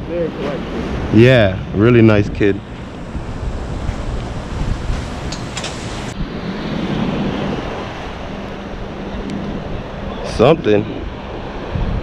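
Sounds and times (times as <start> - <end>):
ocean surf: 0.0 - 12.0
wind buffeting microphone: 0.3 - 12.0.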